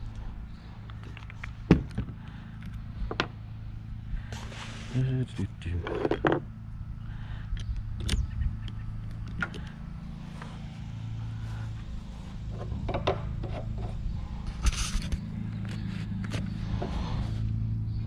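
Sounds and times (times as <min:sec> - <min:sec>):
steady low hum: 0:00.0 - 0:18.0
short scrape: 0:04.3 - 0:05.1, 0:14.5 - 0:17.5.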